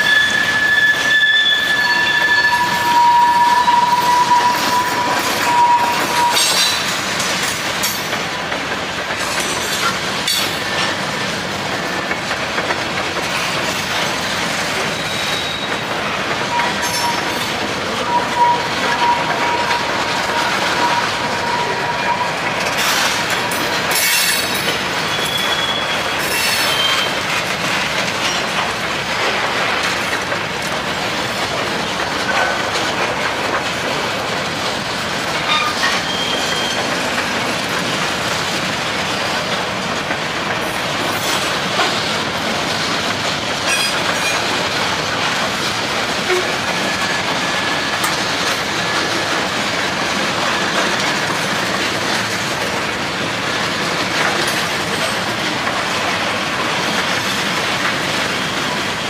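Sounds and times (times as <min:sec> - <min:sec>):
high wheel squeal: 0:00.0 - 0:07.0, 0:14.8 - 0:23.1, 0:23.9 - 0:27.2, 0:35.4 - 0:37.0
train wheels clattering over rail joints: 0:00.1 - 0:59.0.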